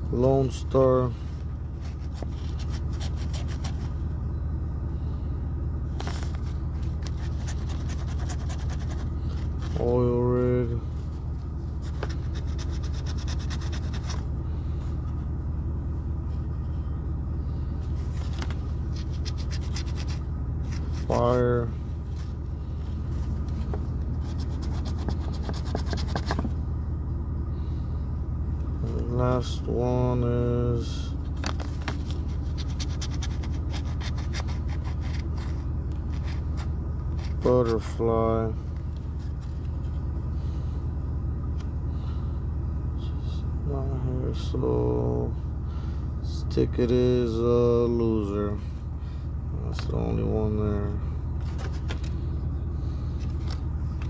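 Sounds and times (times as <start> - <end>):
low rumble: 0.0 - 44.6
low hum: 0.0 - 54.0
coin scratching a ticket: 7.2 - 9.1, 12.2 - 14.2, 19.0 - 20.2.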